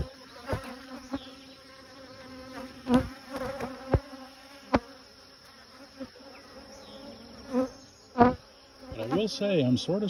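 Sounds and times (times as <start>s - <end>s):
honey bees buzzing: 0.0s - 10.0s.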